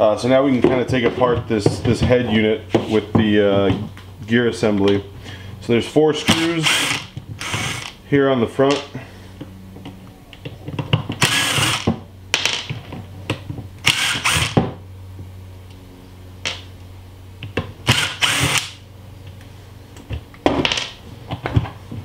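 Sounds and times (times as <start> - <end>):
cordless drill running: 6.3 - 8.0, 11.2 - 11.9, 13.8 - 14.6, 17.9 - 18.8.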